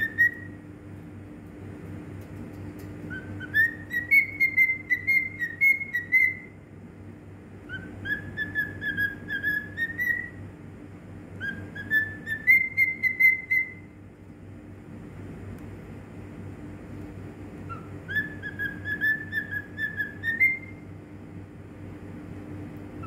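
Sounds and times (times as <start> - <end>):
cockatiel whistling: 0.0 - 0.6, 3.1 - 6.6, 7.7 - 10.4, 11.4 - 13.9, 17.7 - 20.8.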